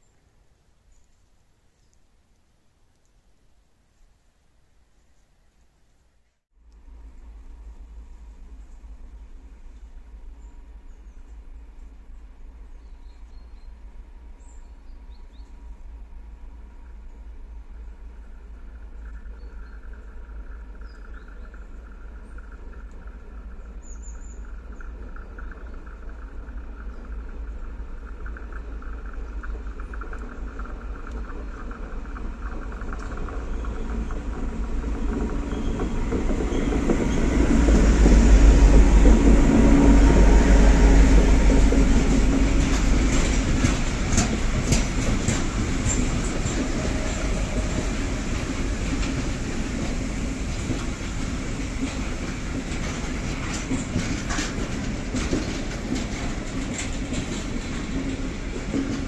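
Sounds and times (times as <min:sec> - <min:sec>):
locomotive engine drone: 0:06.7 - 0:59.0
hopper wagons rolling past: 0:18.1 - 0:59.0
wheel clicks over rail joints: 0:50.6 - 0:59.0.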